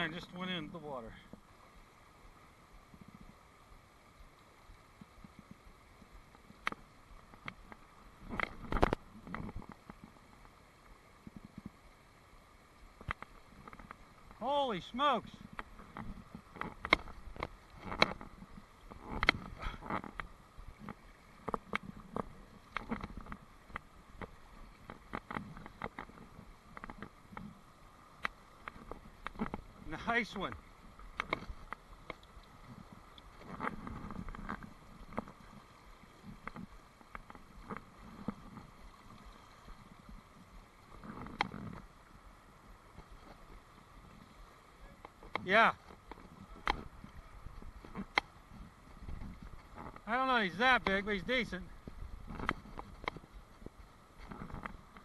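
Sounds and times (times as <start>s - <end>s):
stream rushing over rocks: 0.0s - 55.0s
fishing rod and reel clicks: 15.5s - 27.5s, 31.1s - 32.5s, 41.0s - 41.8s, 52.2s - 53.3s.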